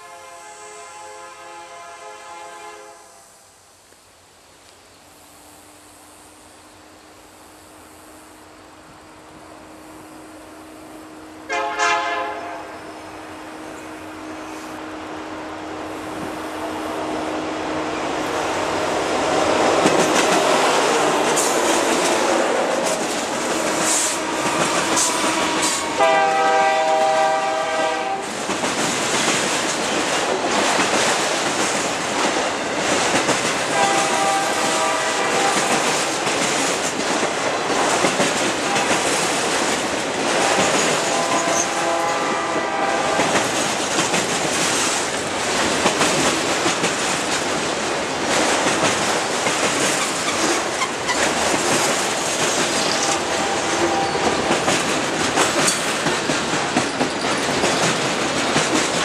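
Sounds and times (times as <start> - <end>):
train horn: 0.0 - 3.2, 11.3 - 15.7, 23.7 - 28.3, 33.7 - 36.0, 38.6 - 39.2, 40.4 - 43.5, 52.8 - 54.8
train wheels rumbling on rails: 5.2 - 59.0.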